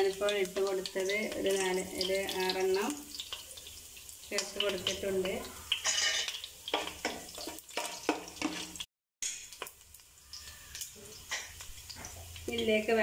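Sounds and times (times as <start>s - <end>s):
wooden spatula scraping a pot: 4.6s - 8.8s.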